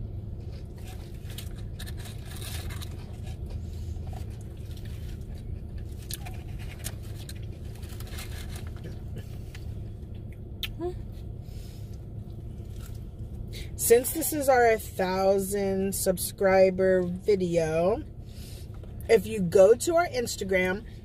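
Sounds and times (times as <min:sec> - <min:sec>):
low hum: 0:00.0 - 0:21.0
person chewing: 0:00.4 - 0:10.8, 0:11.9 - 0:13.4.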